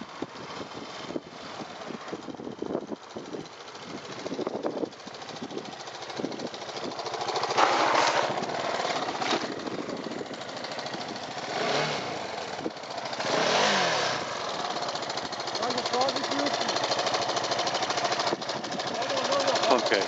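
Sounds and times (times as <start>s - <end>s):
motorcycle engine running: 0.0s - 20.0s
motorcycle skidding on loose surface: 6.7s - 15.6s.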